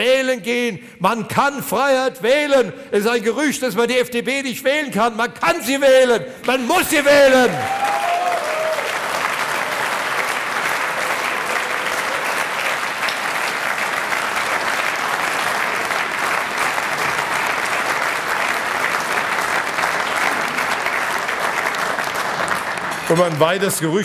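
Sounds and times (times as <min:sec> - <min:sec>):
audience applauding: 0:06.4 - 0:24.0.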